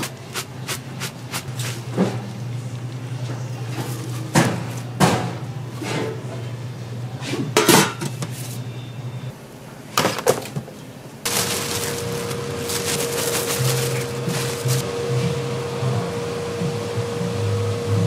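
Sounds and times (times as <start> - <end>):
cookware clattering: 7.6 - 8.4.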